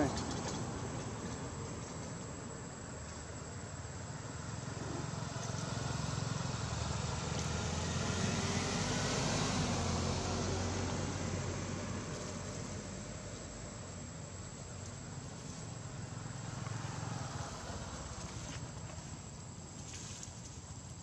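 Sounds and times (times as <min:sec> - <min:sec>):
vehicle passing with engine rumble: 0:00.0 - 0:21.0.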